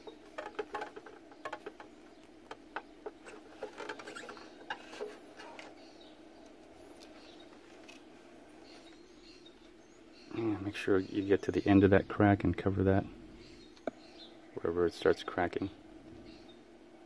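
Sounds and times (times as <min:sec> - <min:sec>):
plastic ticking: 0:00.0 - 0:05.7
faint steady hum: 0:00.0 - 0:17.0.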